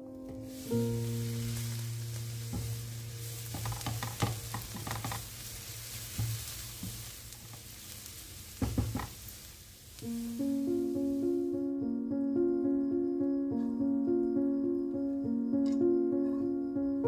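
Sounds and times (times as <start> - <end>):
vegetables sizzling in a frying pan: 0.3 - 11.5
spatula scraping and tapping pan: 2.5 - 8.0.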